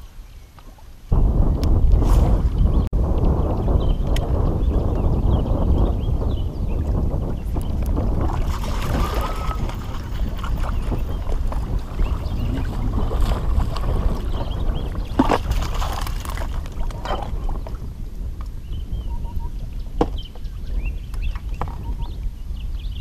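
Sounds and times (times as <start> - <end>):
wind buffeting microphone: 0.0 - 23.0
fish splashing in water: 15.1 - 17.4.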